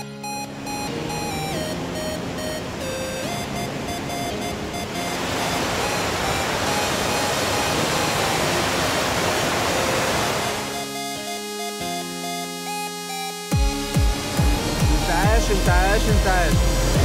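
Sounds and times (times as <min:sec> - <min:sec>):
electronic background music: 0:00.0 - 0:17.0
waterfall pouring: 0:05.0 - 0:10.7.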